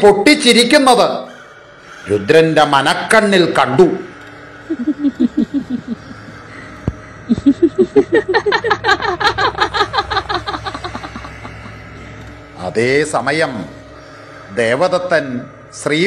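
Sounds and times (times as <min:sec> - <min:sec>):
woman cackling laugh: 0:04.7 - 0:06.4, 0:07.3 - 0:11.6.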